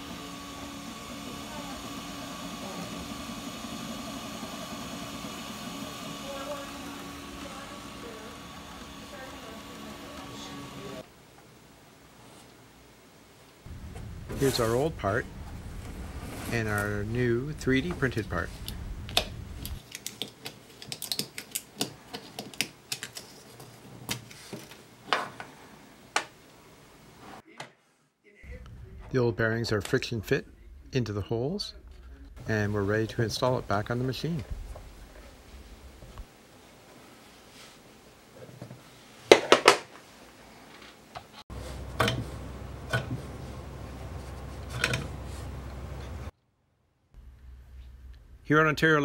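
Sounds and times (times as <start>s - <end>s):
low steady hum: 12.8s - 19.8s, 28.5s - 36.4s, 41.5s - 46.3s, 47.2s - 49.0s.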